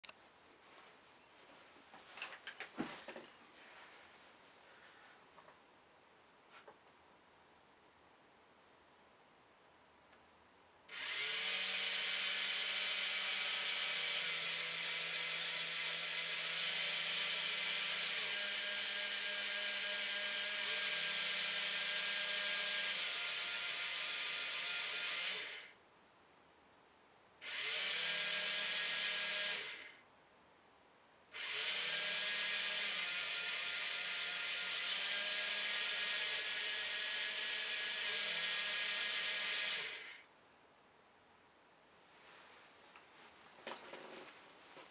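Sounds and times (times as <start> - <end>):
small motors whirring: 10.9 - 25.8, 27.4 - 30.0, 31.4 - 40.3.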